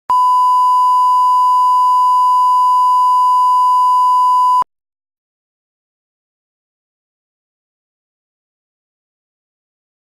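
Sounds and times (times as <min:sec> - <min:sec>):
steady pure tone beep: 0:00.1 - 0:04.7.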